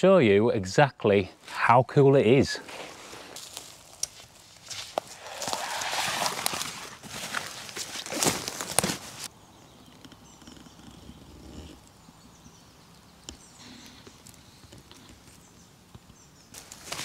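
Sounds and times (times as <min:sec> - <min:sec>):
faint outdoor background: 0:00.0 - 0:17.0
footsteps through undergrowth: 0:02.6 - 0:09.3, 0:16.5 - 0:17.0
rustling: 0:02.6 - 0:09.3, 0:16.5 - 0:17.0.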